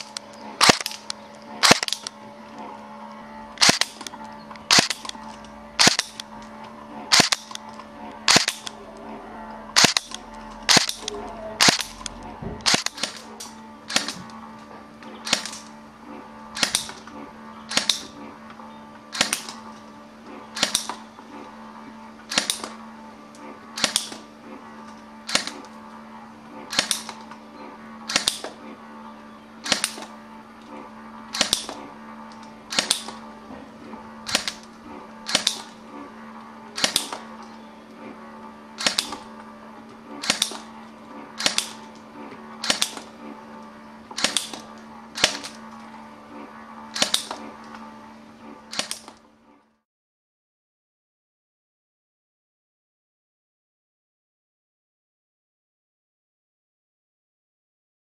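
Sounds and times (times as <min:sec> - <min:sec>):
airsoft pistol shots: 0:00.6 - 0:01.0, 0:01.6 - 0:02.1, 0:03.6 - 0:04.0, 0:04.7 - 0:05.1, 0:05.8 - 0:06.2, 0:07.1 - 0:07.6, 0:08.3 - 0:08.8, 0:09.8 - 0:12.0, 0:12.6 - 0:13.3, 0:36.8 - 0:37.2, 0:38.8 - 0:39.2, 0:40.2 - 0:40.6, 0:41.4 - 0:41.8, 0:44.2 - 0:44.6.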